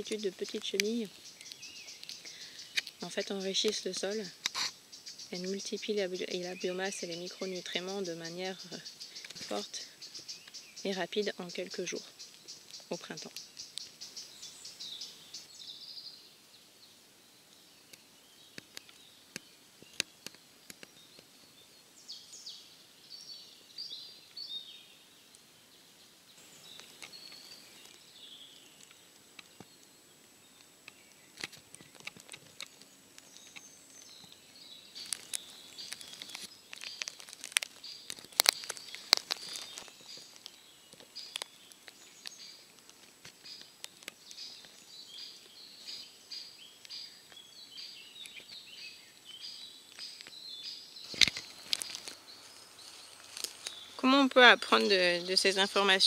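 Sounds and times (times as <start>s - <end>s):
droppings ticking onto dry leaves: 0.0s - 15.5s, 26.4s - 47.5s, 48.2s - 50.4s, 51.0s - 56.0s
birds chirping: 0.0s - 56.0s.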